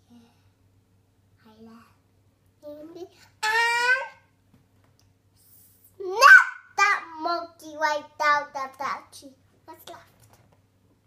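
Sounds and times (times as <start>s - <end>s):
faint hiss: 5.0s - 6.1s.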